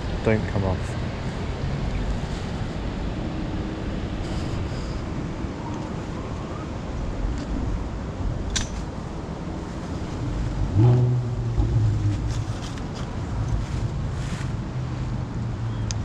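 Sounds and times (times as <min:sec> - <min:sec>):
wind rumbling on microphone: 0:00.0 - 0:16.0
low droning hum: 0:06.9 - 0:15.4.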